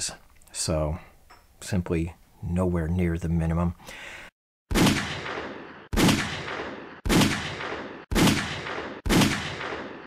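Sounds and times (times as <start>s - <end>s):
pistol shots: 4.7s - 10.0s.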